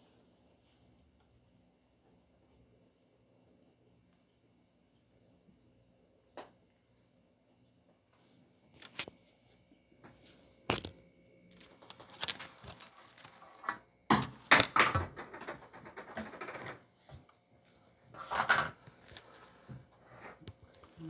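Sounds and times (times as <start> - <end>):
plastic wrap crinkling: 10.7 - 13.8, 18.7 - 19.6.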